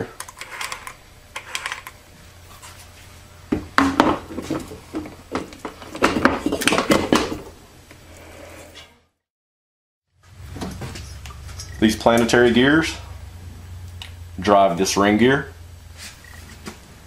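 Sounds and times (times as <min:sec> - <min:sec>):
low steady hum: 0:10.2 - 0:17.0.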